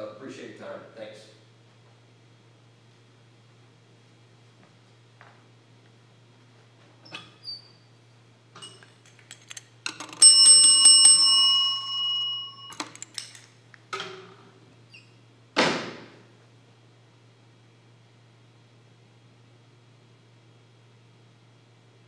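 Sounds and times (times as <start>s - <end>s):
objects clicking and knocking: 8.6s - 10.2s, 12.7s - 14.1s.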